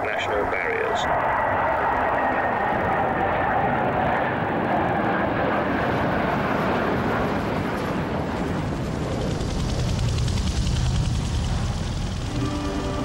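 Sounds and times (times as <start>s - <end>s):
jet aircraft flying past: 0.0s - 13.0s
deep rumble: 8.9s - 13.0s.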